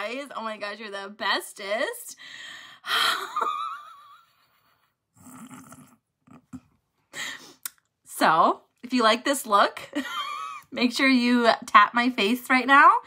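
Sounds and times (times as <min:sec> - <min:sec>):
woman laughing: 0:02.9 - 0:04.8, 0:09.9 - 0:10.7.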